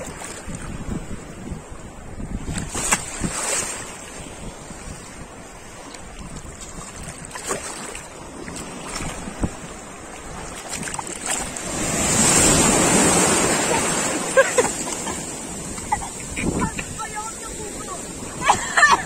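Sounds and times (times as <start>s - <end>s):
waves splashing: 0.0s - 19.0s
wind rumble on microphone: 0.0s - 19.0s.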